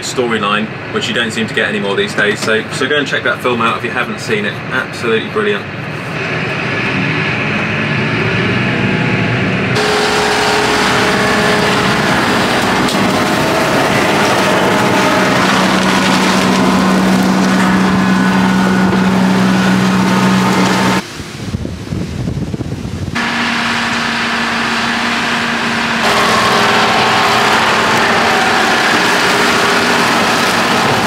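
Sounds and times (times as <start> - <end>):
tractor engine running: 5.8 - 21.1, 23.2 - 31.0
flail mower cutting grass: 9.7 - 21.0, 23.2 - 31.0.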